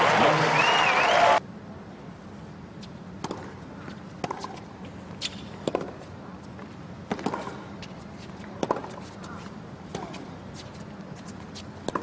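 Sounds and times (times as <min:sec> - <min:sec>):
low arena hum: 0:00.0 - 0:12.0
racket hitting tennis ball: 0:03.2 - 0:06.1, 0:07.0 - 0:07.6, 0:08.3 - 0:12.0.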